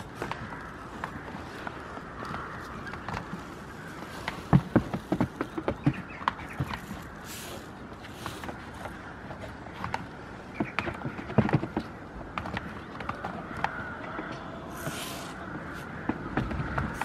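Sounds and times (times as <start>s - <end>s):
outdoor background: 0.0s - 17.0s
goat hooves tapping on plastic: 4.0s - 7.0s.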